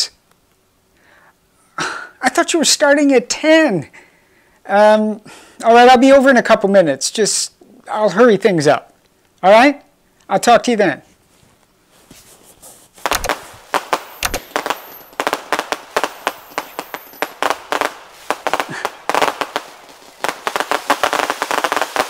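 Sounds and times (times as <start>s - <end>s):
fireworks deep booms: 13.0s - 22.0s
fireworks sharp bangs and pops: 13.0s - 22.0s.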